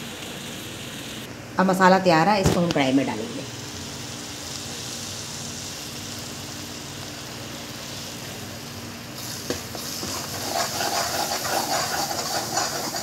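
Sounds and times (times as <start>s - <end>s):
masala sizzling in metal pan: 0.0s - 1.3s, 2.2s - 13.0s
spoon stirring and scraping: 9.5s - 13.0s.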